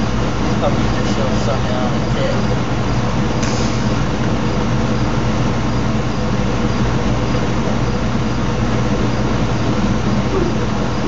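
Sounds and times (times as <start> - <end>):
loud mechanical hum: 0.0 - 11.0.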